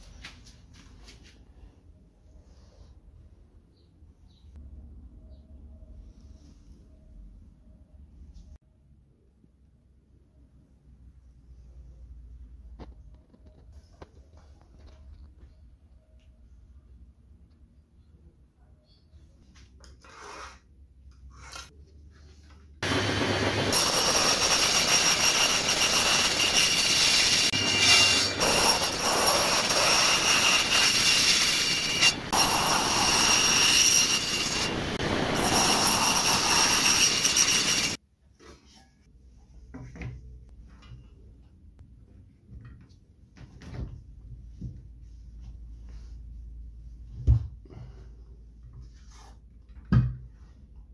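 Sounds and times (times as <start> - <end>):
circular saw cutting with high whine: 22.8 - 38.0.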